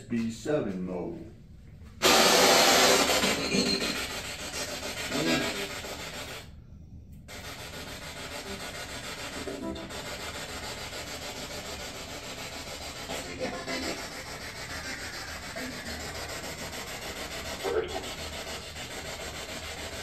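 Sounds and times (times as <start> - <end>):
radio static sweeping: 12.9 - 18.5.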